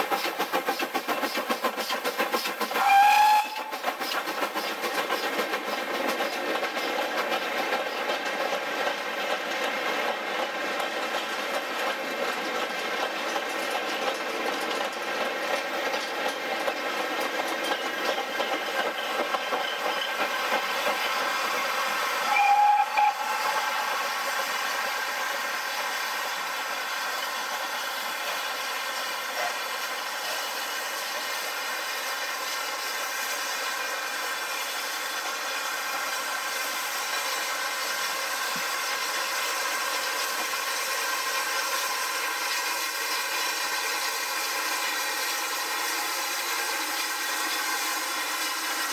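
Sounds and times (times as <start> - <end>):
steam hissing: 0.0 - 48.9
steam trains running: 0.0 - 48.9
steam whistle toots: 2.7 - 3.8, 22.2 - 26.2.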